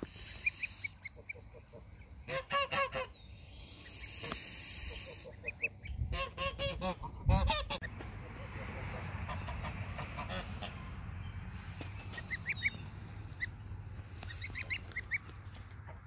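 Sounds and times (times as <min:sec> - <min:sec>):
geese honking: 0:00.0 - 0:11.0.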